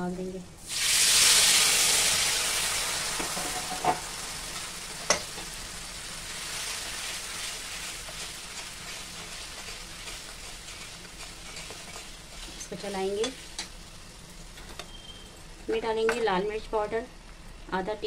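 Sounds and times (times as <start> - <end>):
batter sizzling in hot oil: 0.6 - 15.7.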